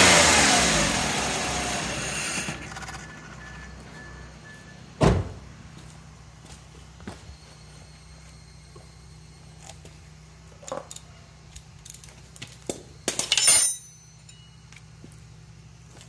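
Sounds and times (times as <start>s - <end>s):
metal parts clinking: 10.6s - 12.2s, 13.0s - 14.7s.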